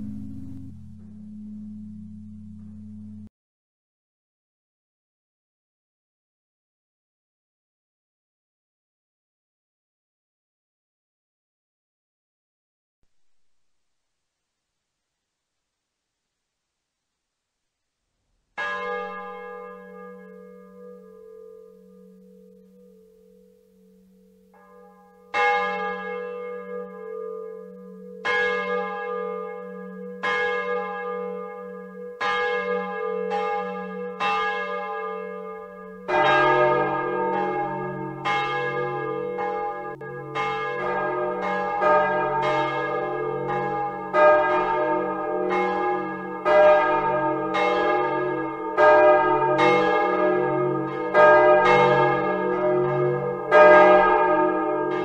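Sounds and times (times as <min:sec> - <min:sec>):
church bells pealing: 0:00.0 - 0:03.3, 0:18.6 - 0:23.6, 0:24.6 - 0:55.0.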